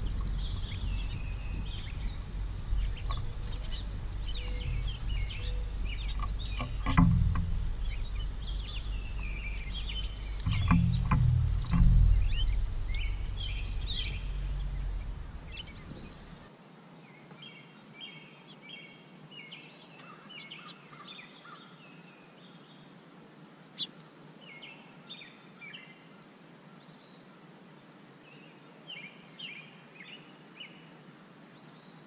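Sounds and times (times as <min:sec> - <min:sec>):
sharp click: 0:00.0 - 0:16.4
low rumble: 0:00.0 - 0:16.5
songbirds chirping: 0:00.0 - 0:32.0.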